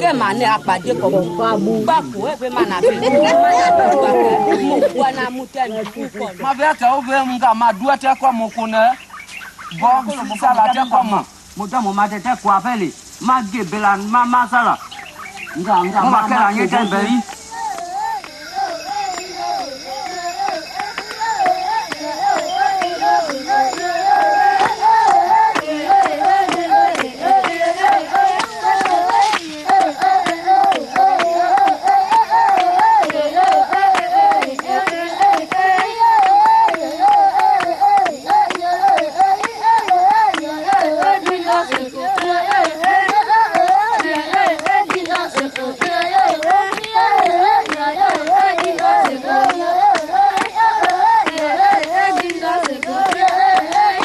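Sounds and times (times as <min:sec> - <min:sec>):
women singing a chant: 0:00.0 - 0:06.5, 0:15.6 - 0:54.0
hand claps: 0:16.0 - 0:54.0.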